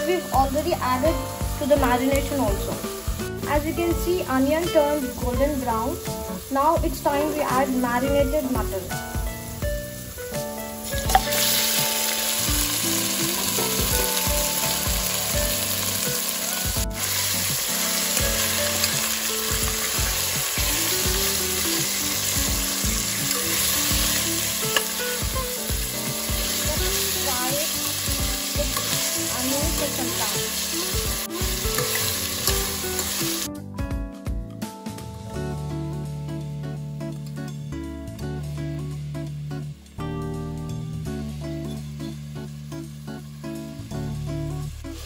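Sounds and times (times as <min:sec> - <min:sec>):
meat sizzling in hot oil: 0:00.1 - 0:33.5.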